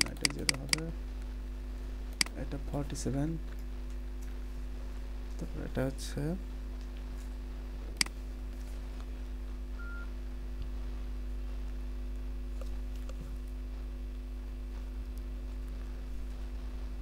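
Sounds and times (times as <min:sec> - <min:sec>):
electrical hum and hiss: 0:00.0 - 0:17.0.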